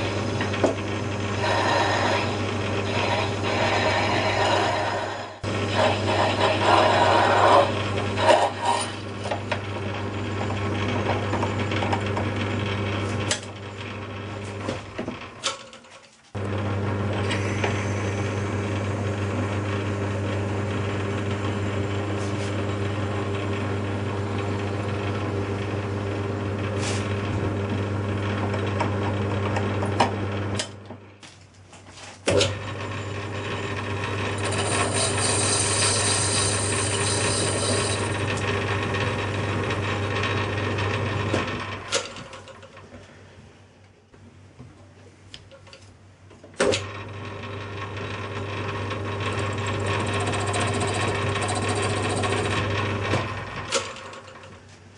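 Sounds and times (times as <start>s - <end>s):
metal lathe motor hum: 0.0s - 14.6s, 16.4s - 30.8s, 32.4s - 42.7s, 46.8s - 54.6s
drill cutting metal: 1.2s - 9.4s, 33.2s - 40.2s, 48.9s - 53.1s.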